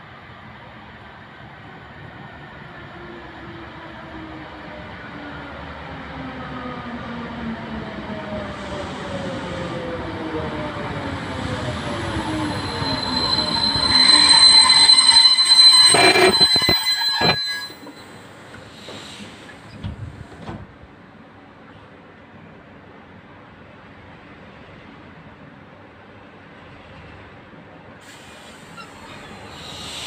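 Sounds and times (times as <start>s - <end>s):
electric train whine: 2.7s - 18.4s
train brakes squealing: 10.5s - 19.8s, 28.0s - 30.0s.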